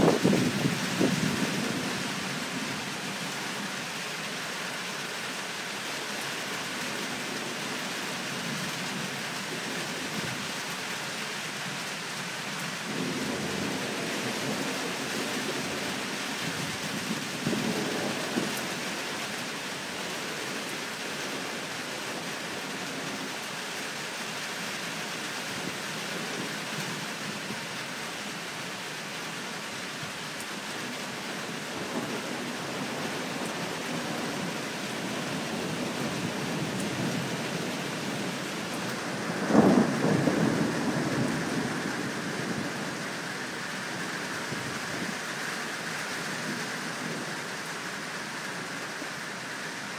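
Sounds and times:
thunder rumbling: 0.0s - 2.6s, 31.8s - 45.4s
steady rain: 0.0s - 49.9s
loud thunderclap: 39.1s - 42.9s.

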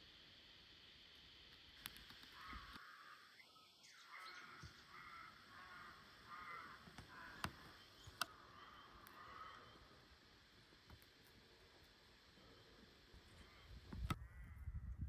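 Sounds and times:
sharp clicks: 1.5s - 2.8s, 6.8s - 8.4s
crow cawing: 2.3s - 10.0s, 13.4s - 14.8s.

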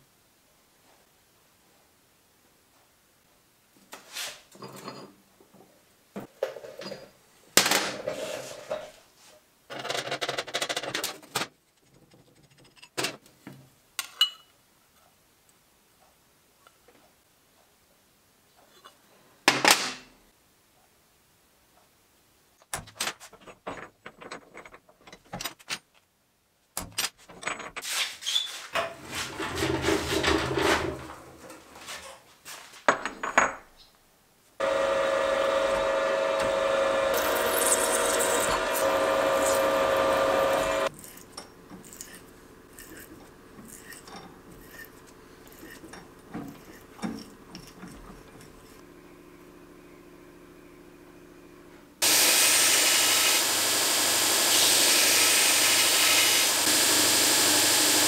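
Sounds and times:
milling machine motor whine: 34.6s - 40.9s, 52.0s - 58.0s
shop noise: 34.6s - 48.1s
scriber scraping steel: 37.1s - 48.8s.

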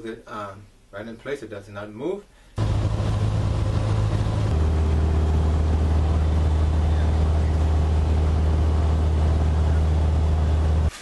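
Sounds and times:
light aircraft engine drone: 2.6s - 10.9s.

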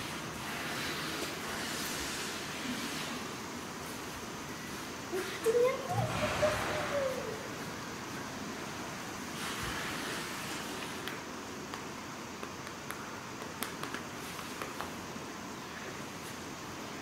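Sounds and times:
steady hiss: 0.0s - 17.0s
small clicks and taps: 11.0s - 15.0s.

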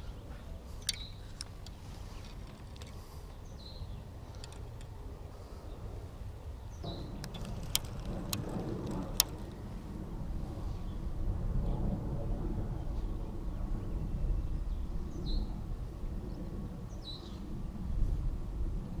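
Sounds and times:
bird chirps: 0.0s - 1.4s
low rumble of wind and water: 0.0s - 19.0s
sharp clicks: 7.2s - 9.6s.

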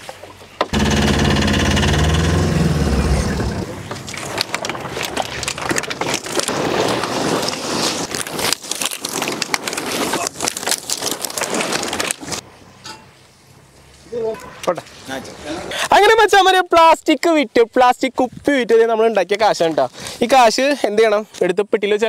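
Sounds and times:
pickup truck engine running: 0.8s - 3.9s
plastic sacks crackling: 4.1s - 12.4s.

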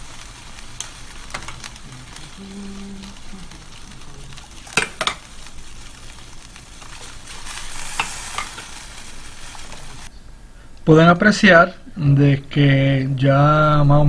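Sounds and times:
water boiling and bubbling: 0.0s - 10.1s.

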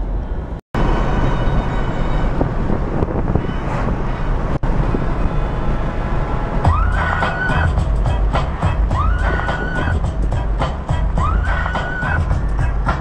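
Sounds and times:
car engine and road noise: 0.0s - 13.0s
music with a held high note: 5.2s - 13.0s.

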